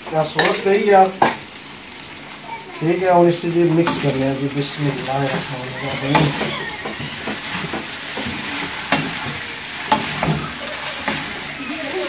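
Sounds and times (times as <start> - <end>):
noodles sizzling in a wok: 0.0 - 12.0
utensils knocking on pan: 1.2 - 1.4, 3.8 - 11.6.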